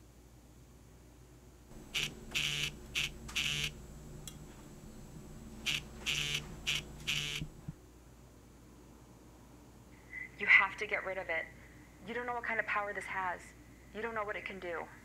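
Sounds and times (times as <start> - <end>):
mobile phone ringing: 1.8 - 3.8, 4.9 - 7.6.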